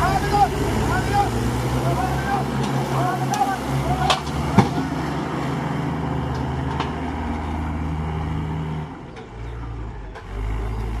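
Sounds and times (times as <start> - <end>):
tractor diesel engine under load: 0.0 - 11.0.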